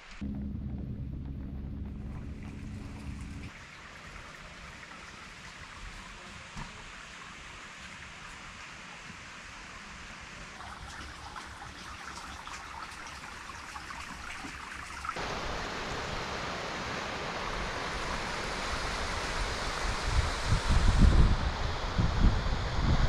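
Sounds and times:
water trickling and dripping: 0:01.9 - 0:16.3
stream running over rocks: 0:02.6 - 0:21.7.

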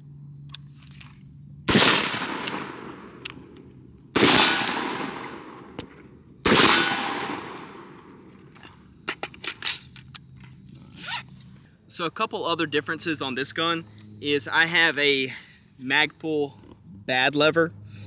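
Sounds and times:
rifle shots ringing out: 0:01.7 - 0:03.5, 0:04.1 - 0:08.3.

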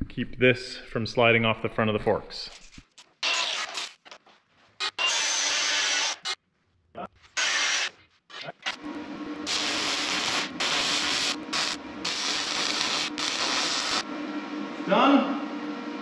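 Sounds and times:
arc welding crackling: 0:07.4 - 0:14.1.

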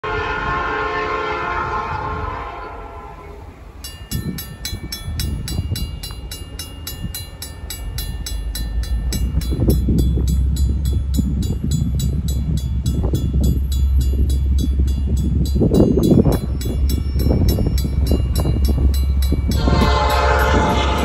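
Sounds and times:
distant locomotive air horn: 0:00.0 - 0:03.7, 0:19.5 - 0:21.0
crossing bell ringing: 0:03.4 - 0:21.0.

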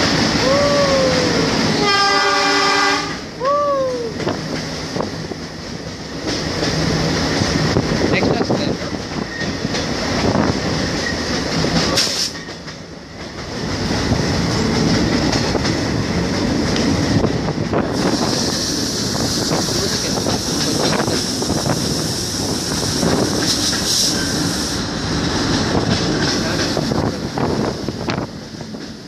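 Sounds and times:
train wheels rumbling: 0:00.0 - 0:29.0
clickety-clack of rail joints: 0:04.0 - 0:29.0
hiss: 0:12.0 - 0:12.4, 0:18.0 - 0:25.0.

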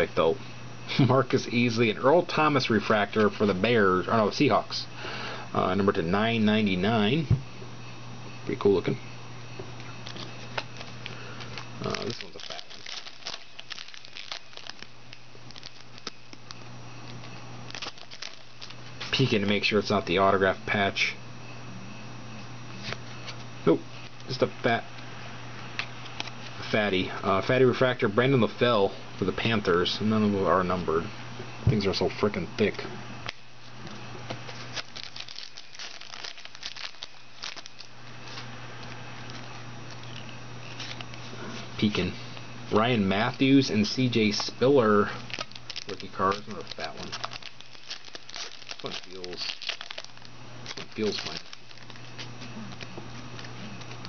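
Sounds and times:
foil wrapper crinkling: 0:10.0 - 0:19.4, 0:34.4 - 0:41.3, 0:43.2 - 0:54.0.

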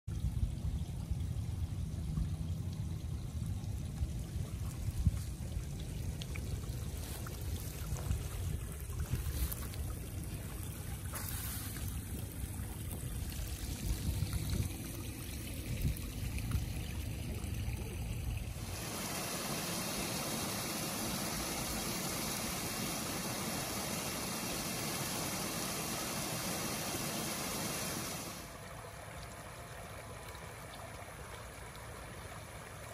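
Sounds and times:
water trickling over stones: 0:00.1 - 0:32.9
small waterfall rushing: 0:18.5 - 0:32.9.

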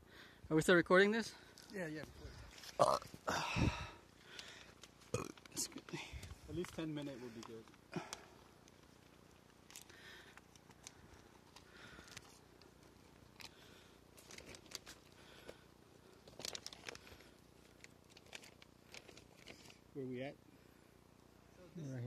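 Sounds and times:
plastic bag crinkling: 0:07.4 - 0:19.8.

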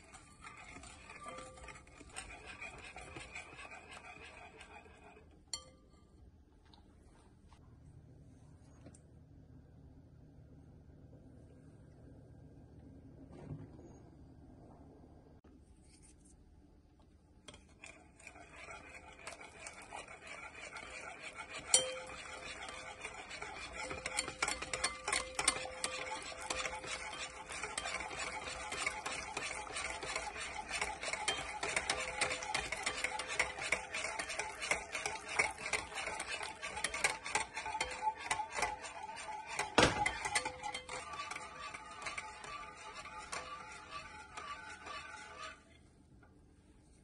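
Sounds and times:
whisk knocking bowl: 0:00.0 - 0:05.7, 0:17.5 - 0:45.6
whisk scraping glass bowl: 0:00.0 - 0:06.0, 0:17.4 - 0:45.9.

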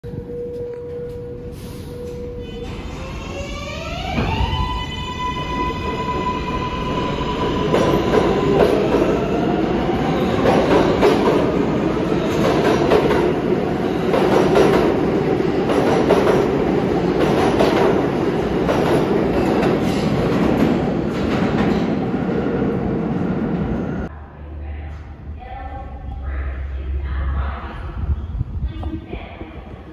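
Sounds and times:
subway train wheels rumbling: 0:00.0 - 0:29.9
rail clacks: 0:10.3 - 0:22.4.

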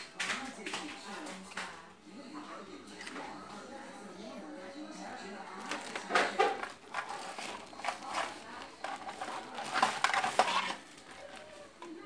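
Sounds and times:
plastic toy parts clattering: 0:05.6 - 0:12.0.

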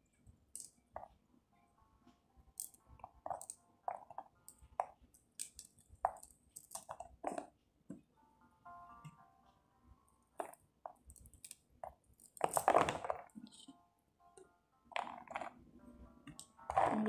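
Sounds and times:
pomegranate rind crackling: 0:12.2 - 0:13.5.

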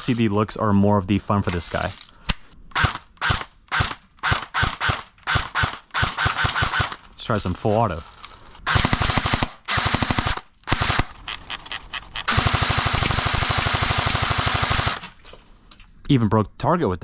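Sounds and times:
airsoft rifle automatic bursts: 0:02.7 - 0:07.0, 0:08.6 - 0:11.4, 0:12.2 - 0:15.2.

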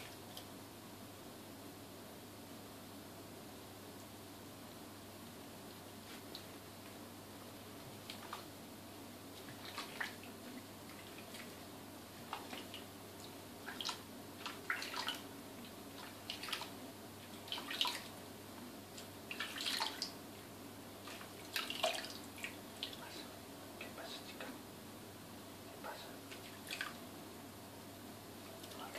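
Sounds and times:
hands splashing water: 0:09.5 - 0:10.2, 0:21.1 - 0:22.6.

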